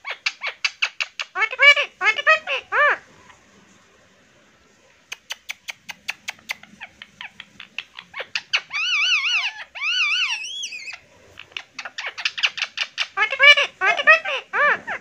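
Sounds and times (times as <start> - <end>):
parrot warbling chatter: 0.0 - 3.0, 5.3 - 15.0
parrot clicking: 5.1 - 8.0.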